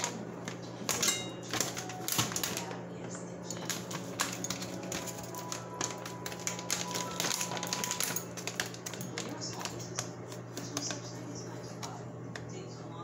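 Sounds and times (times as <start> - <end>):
music playing: 0.0 - 9.8
plastic pouches rustling: 0.0 - 11.8.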